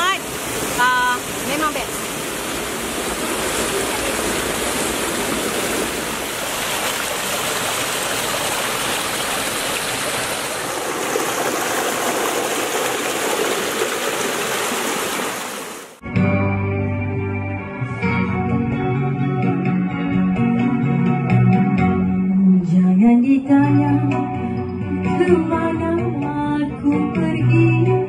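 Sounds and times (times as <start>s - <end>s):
stream rushing over boulders: 0.0s - 16.0s.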